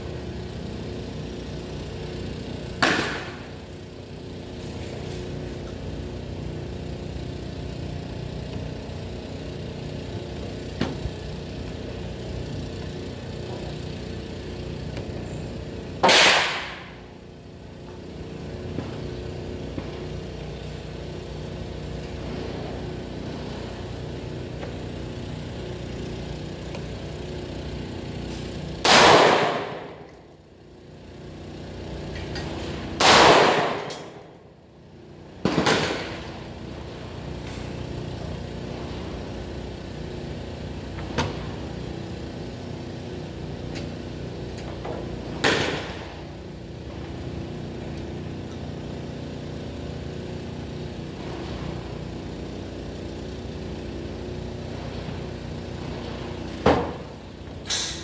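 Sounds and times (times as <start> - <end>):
low mechanical hum: 0.0 - 58.0
rifle shots: 16.0 - 16.8, 28.8 - 29.8, 33.0 - 34.1.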